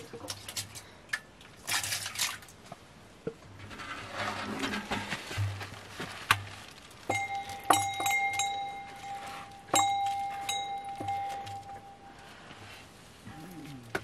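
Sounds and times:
metallic clinks with bell-like ringing: 7.1 - 12.1.

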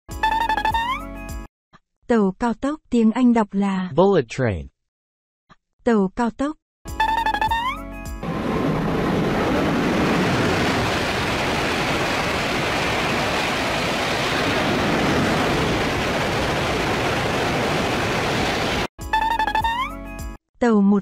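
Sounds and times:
bullet train rushing past: 8.2 - 18.9.

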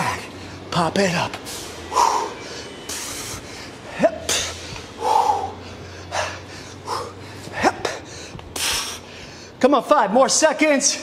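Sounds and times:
man breathing hard: 1.5 - 9.6.

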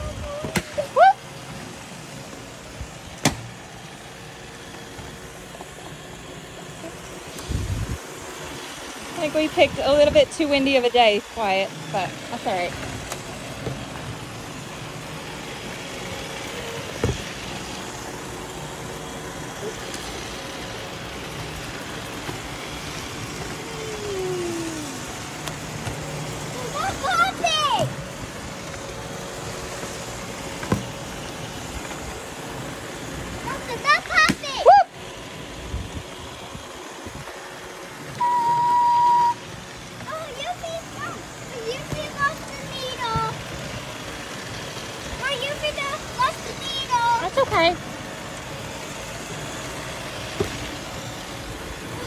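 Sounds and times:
robot vacuums whirring: 0.0 - 52.0
wind noise: 7.4 - 8.0
short rising squeal: 38.2 - 39.4.

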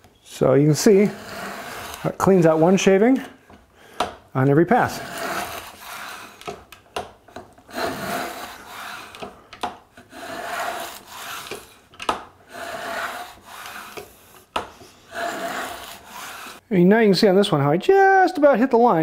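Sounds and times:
plane rasping along wooden board: 0.8 - 3.0, 4.9 - 6.6, 7.7 - 9.3, 10.0 - 11.8, 12.5 - 14.4, 15.0 - 16.6.

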